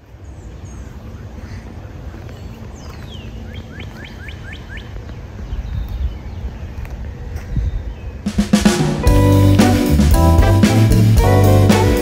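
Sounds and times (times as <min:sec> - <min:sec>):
songbird singing: 0:00.0 - 0:12.0
steady low rumbling: 0:06.4 - 0:12.0.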